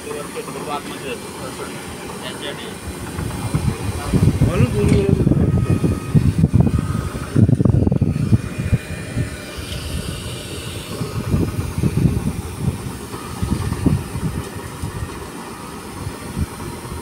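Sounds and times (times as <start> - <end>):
sweeper motor whir and hiss: 0.0 - 17.0.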